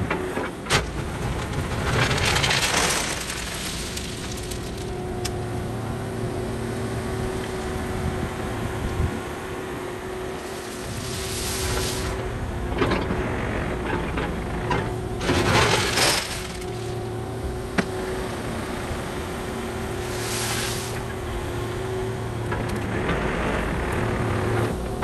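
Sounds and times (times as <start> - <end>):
excavator engine running: 0.0 - 25.0
scraping and rattling: 0.7 - 5.1, 13.8 - 17.2.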